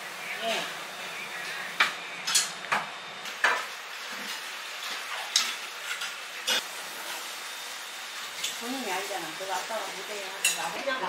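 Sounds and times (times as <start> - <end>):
metal utensils clinking on bowl: 10.4 - 10.8.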